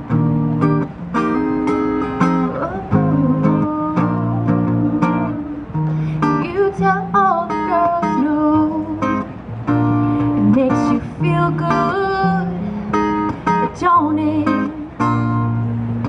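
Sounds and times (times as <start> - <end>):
acoustic guitar strummed: 0.0 - 16.0
woman singing: 2.4 - 9.3, 10.2 - 12.7, 13.5 - 15.0.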